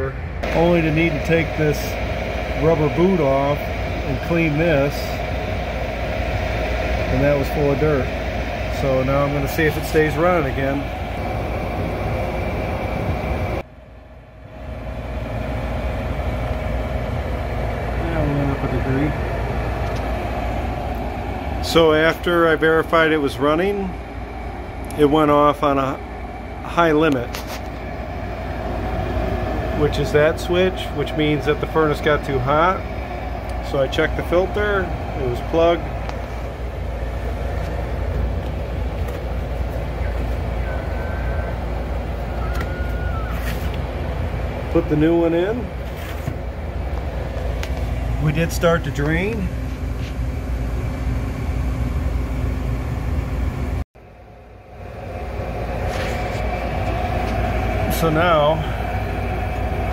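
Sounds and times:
gas furnace humming: 0:00.0 - 0:59.9.

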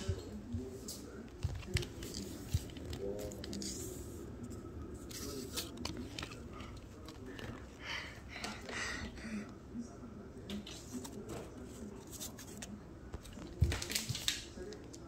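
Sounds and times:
paper scraping and rustling: 0:05.0 - 0:07.4.

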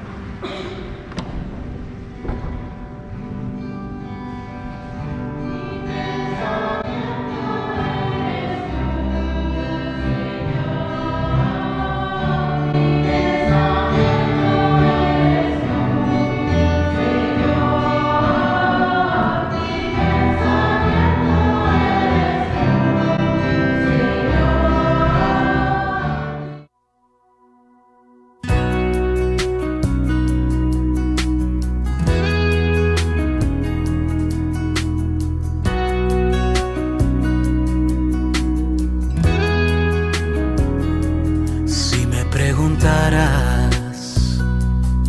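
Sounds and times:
acoustic guitar: 0:00.0 - 0:26.7, 0:28.4 - 0:45.0
group singing a hymn: 0:05.6 - 0:26.6.

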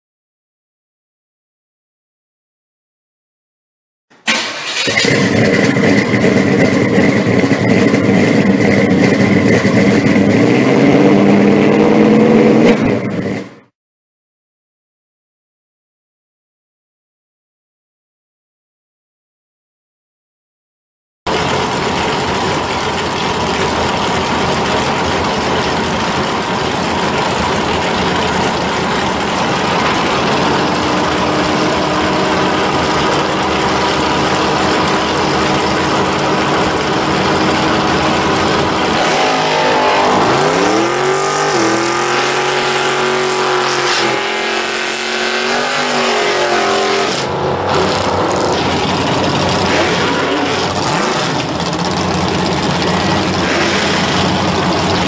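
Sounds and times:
drag car engine revving: 0:04.2 - 0:13.7, 0:21.3 - 0:55.0
car pulling away: 0:04.3 - 0:13.6, 0:21.3 - 0:55.0.

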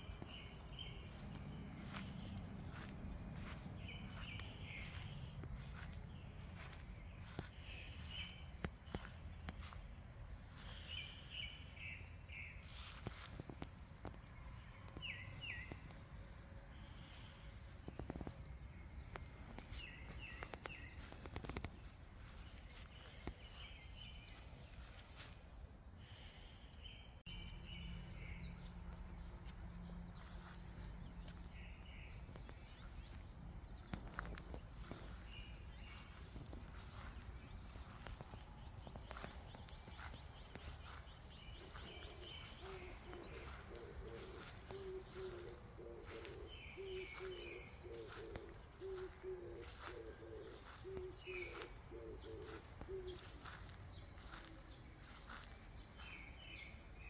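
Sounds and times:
small birds chirping: 0:00.0 - 0:57.0
dove cooing: 0:40.6 - 0:54.8.

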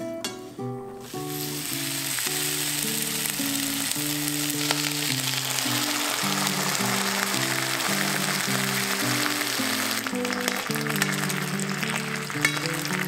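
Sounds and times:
soft background music: 0:00.0 - 0:13.0
vegetables sizzling in oil: 0:00.9 - 0:13.0.

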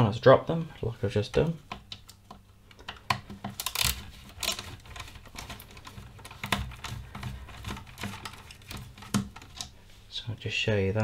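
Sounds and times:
plastic handling knocks: 0:01.4 - 0:09.7.

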